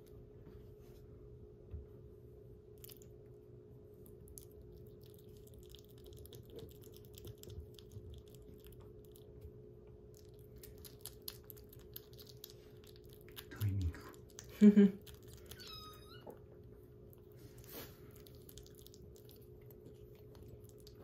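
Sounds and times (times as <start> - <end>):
steady low hum: 0.0 - 21.0
kitten chewing clicks: 4.0 - 15.8, 17.1 - 21.0.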